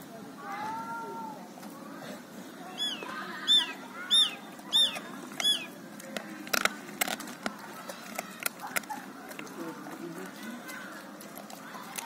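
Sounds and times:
dog chewing bones: 5.0 - 12.0.

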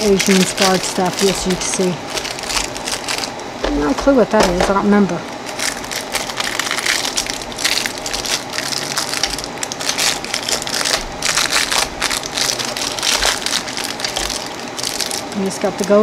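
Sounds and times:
cellophane wrapper crinkling: 0.0 - 16.0.

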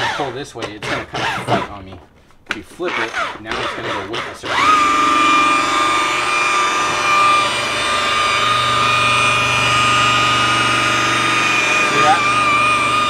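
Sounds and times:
polisher motor whine: 4.1 - 13.0.

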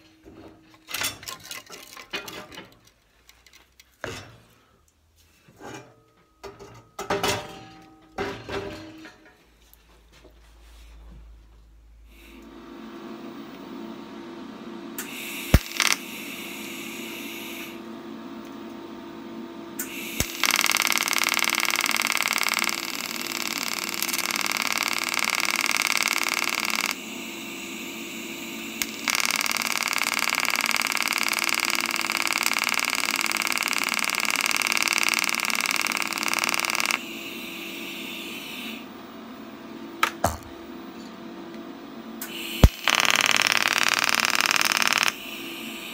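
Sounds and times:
steady low hum: 10.9 - 45.9
welding arc hissing: 15.0 - 17.8, 19.8 - 38.9, 42.2 - 45.9.

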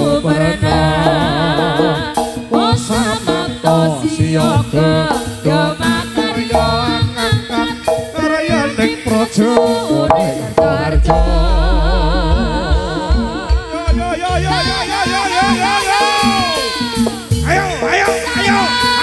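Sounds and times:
deep bass: 0.0 - 5.1, 8.3 - 15.7
woman singing: 0.0 - 17.3, 18.1 - 19.0
gamelan: 0.0 - 19.0.

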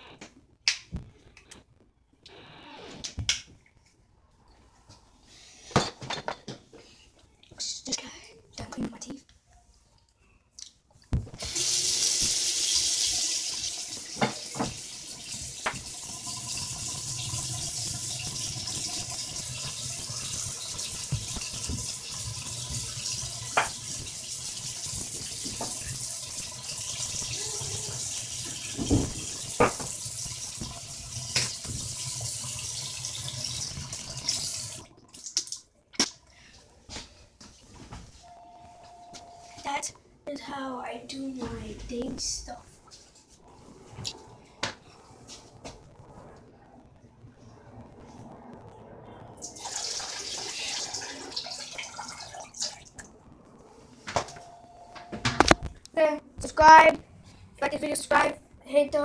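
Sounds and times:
tap water running into sink: 11.4 - 35.6, 49.6 - 52.9.

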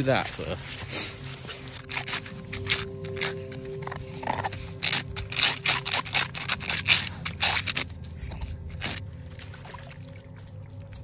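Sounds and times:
dog scraping paws in snow: 0.0 - 9.0.

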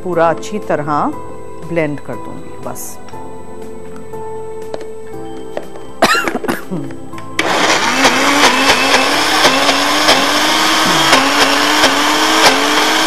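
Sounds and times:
electric blender running: 7.4 - 13.0.

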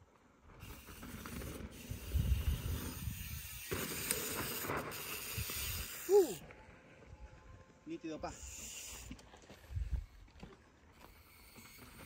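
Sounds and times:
bike tyres skidding on dirt: 0.3 - 6.8, 8.3 - 12.0
wind rumbling on microphone: 1.8 - 3.6, 9.6 - 10.3
person shouting: 6.1 - 6.4.

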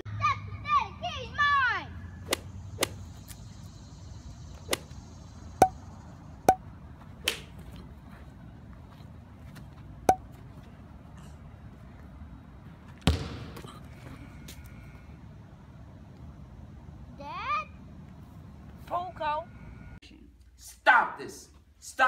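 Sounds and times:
sharp whacks and swishes: 2.3 - 3.0, 4.7 - 4.9.

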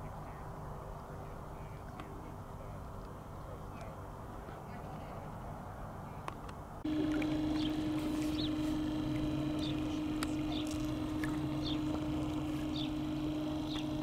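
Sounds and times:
electric motor whine: 6.8 - 14.0.

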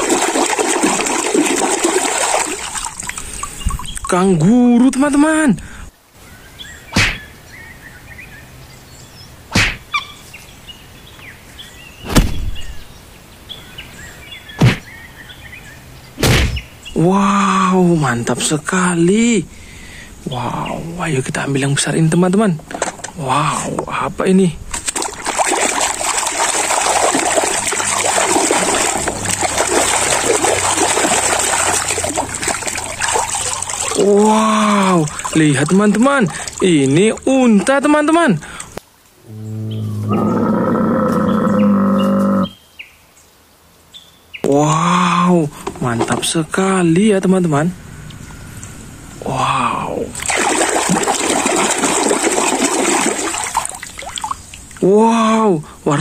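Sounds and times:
hands splashing in water: 0.0 - 4.1, 24.7 - 37.0, 50.2 - 54.4
birds chirping: 2.2 - 24.7, 25.4 - 50.2
sudden thunks: 12.0 - 12.8, 14.6 - 14.9, 16.2 - 16.7.

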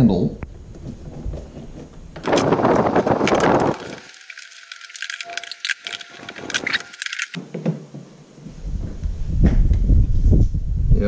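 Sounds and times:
rustling and scraping: 0.7 - 7.4
screwdriver and small parts rattling: 2.2 - 7.4.

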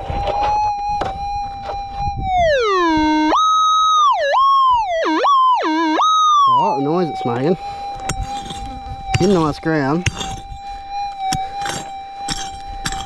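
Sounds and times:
metal detector tone: 4.2 - 13.0.

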